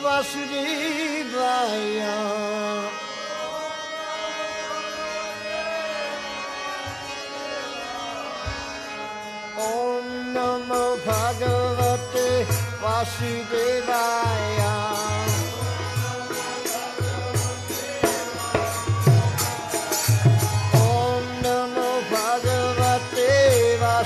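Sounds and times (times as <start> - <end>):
drum strikes: 14.6 - 23.0.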